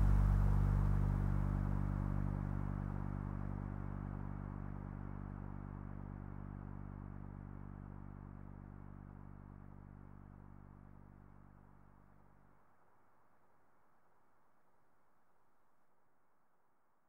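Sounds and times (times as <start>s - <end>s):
low synthesizer drone: 0.0s - 11.5s.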